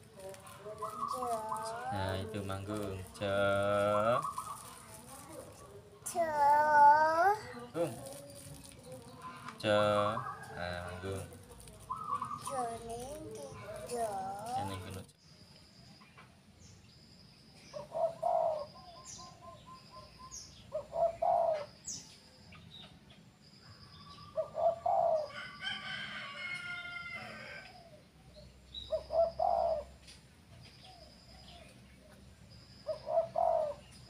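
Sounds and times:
dove cooing: 0:00.0 - 0:15.0, 0:17.8 - 0:19.6, 0:20.7 - 0:21.8, 0:24.3 - 0:25.5, 0:28.9 - 0:30.0, 0:32.8 - 0:33.9
small birds chirping: 0:00.0 - 0:34.0.

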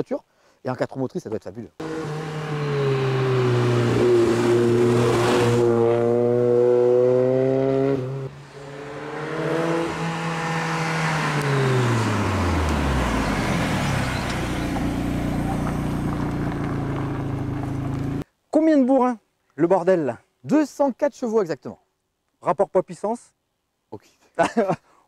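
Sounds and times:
car engine accelerating: 0:01.8 - 0:18.2.

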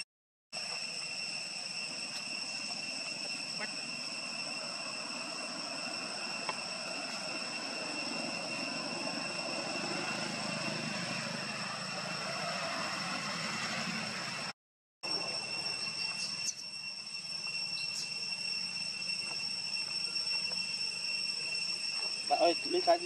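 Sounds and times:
high-pitched insect drone: 0:00.6 - 0:23.0
vehicle passing with low rumble: 0:08.3 - 0:14.5.

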